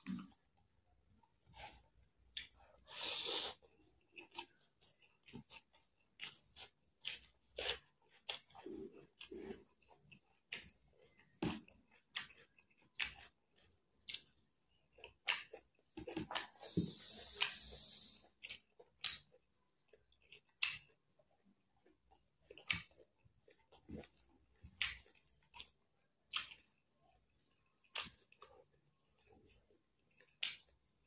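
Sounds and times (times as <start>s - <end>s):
chewing rice: 0.0s - 31.0s
steady hiss: 16.6s - 18.2s.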